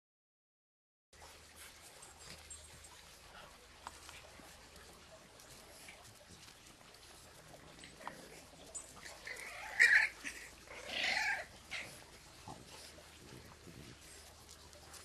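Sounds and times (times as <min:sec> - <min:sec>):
puppies crying: 0:07.9 - 0:12.9.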